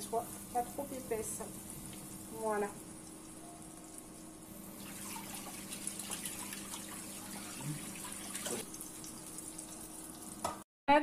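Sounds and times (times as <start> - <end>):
patty sizzling in oil: 0.0 - 10.6
splatter screen knocking on pan: 10.4 - 10.6.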